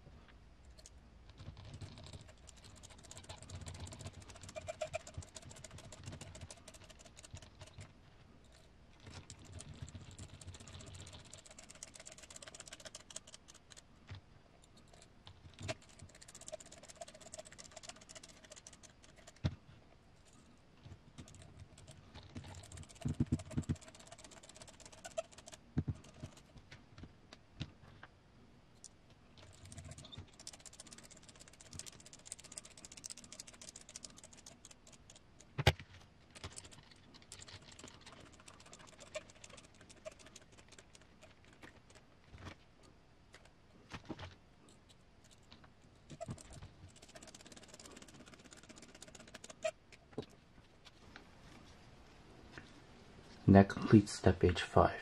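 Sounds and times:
plastic parts clicking and scraping: 0:20.2 - 0:28.0.

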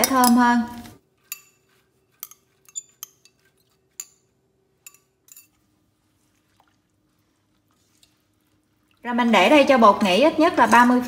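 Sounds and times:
metal utensil clinking on bowl: 0:00.0 - 0:05.7.

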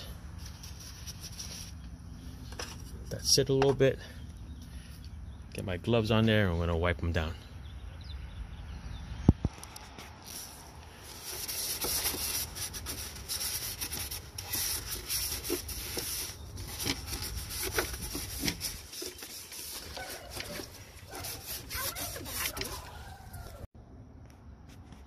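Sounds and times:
cloth rag scrubbing plastic housing: 0:11.1 - 0:23.0.

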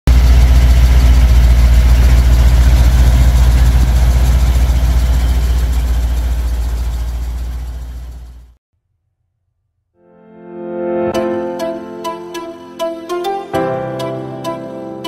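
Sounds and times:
truck engine idling: 0:00.1 - 0:08.6.

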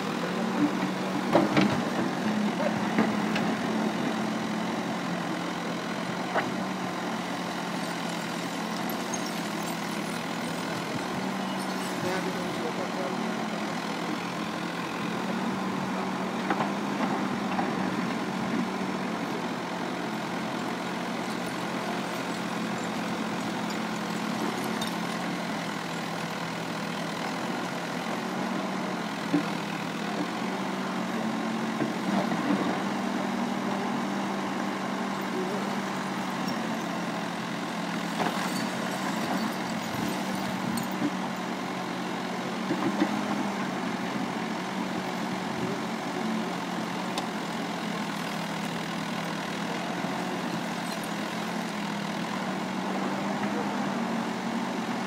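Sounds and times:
backhoe diesel engine running: 0:00.0 - 0:55.0.

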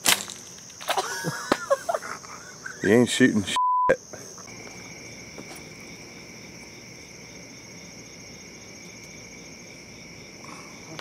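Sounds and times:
high insect trills: 0:00.0 - 0:11.0
pulsing insect call: 0:00.0 - 0:11.0.

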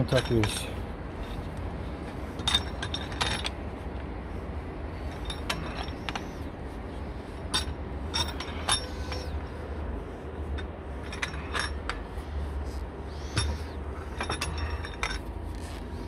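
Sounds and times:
wrench clinking against metal: 0:00.0 - 0:01.4, 0:02.3 - 0:03.6, 0:05.0 - 0:06.4, 0:07.4 - 0:09.4, 0:10.5 - 0:12.0, 0:13.1 - 0:15.8
steady low rumble: 0:00.0 - 0:16.0.

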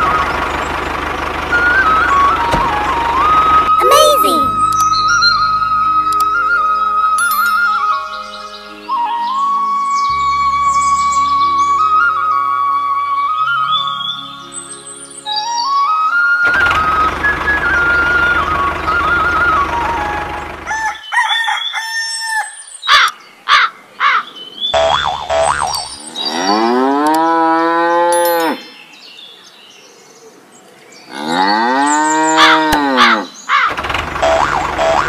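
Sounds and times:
flute-like tune: 0:01.5 - 0:20.7
cartoon sound effects: 0:03.8 - 0:04.8, 0:34.2 - 0:35.0
cow mooing: 0:26.2 - 0:28.6, 0:31.1 - 0:33.3.

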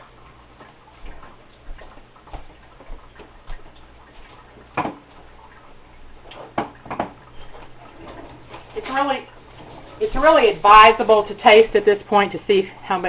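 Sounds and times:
faint room hum: 0:00.0 - 0:13.0
kitchen items clicking and knocking: 0:06.5 - 0:07.2.

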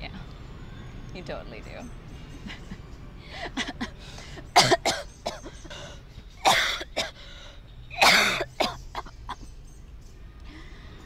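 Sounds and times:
woman talking: 0:01.1 - 0:01.9
woman coughing hard: 0:04.6 - 0:05.7, 0:06.4 - 0:07.2, 0:08.0 - 0:09.4.

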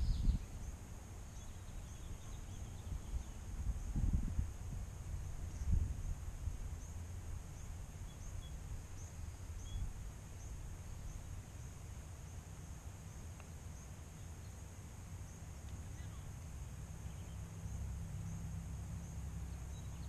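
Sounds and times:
wind rumble on microphone: 0:00.0 - 0:11.5
faint click: 0:15.6 - 0:15.8.

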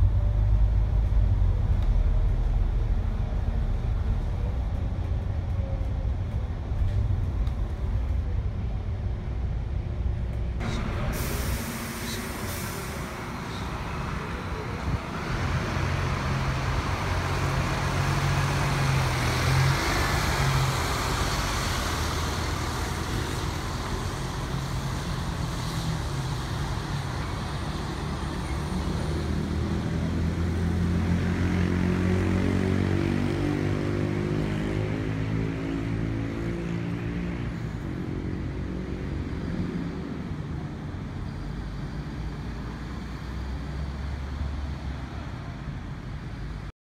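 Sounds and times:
bus accelerating past: 0:00.0 - 0:46.7
bus engine pulling away: 0:00.0 - 0:46.7.

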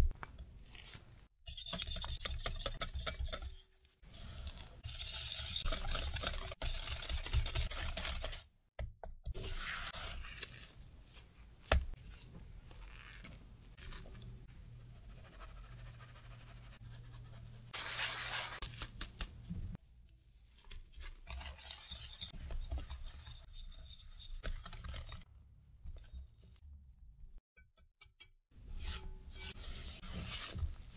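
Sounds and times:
spatula working dough against glass: 0:01.5 - 0:08.5, 0:21.0 - 0:25.3
whisk scraping in glass bowl: 0:01.5 - 0:08.5, 0:21.0 - 0:25.2, 0:28.8 - 0:30.9
flour shaken through sieve: 0:17.8 - 0:19.3.

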